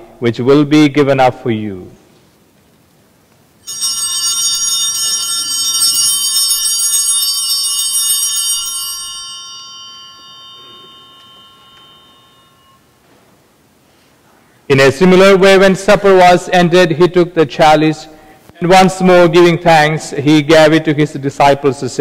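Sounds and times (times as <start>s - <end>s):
altar bells ringing: 3.6s - 13.8s.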